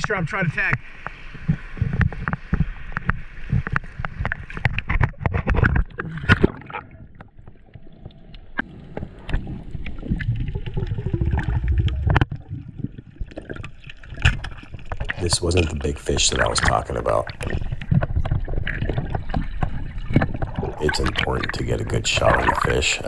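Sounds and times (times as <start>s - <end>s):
muffled underwater rush: 0.0s - 23.0s
sea water sloshing and splashing: 0.6s - 23.0s.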